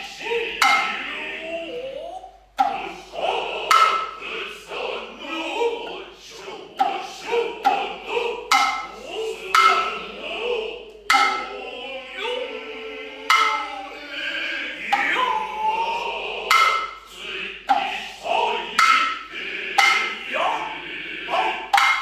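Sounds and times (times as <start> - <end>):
drummers' drawn-out vocal calls: 0.0 - 22.0
hand drum strikes: 8.5 - 8.9, 11.1 - 11.5, 13.3 - 13.7, 21.7 - 22.0.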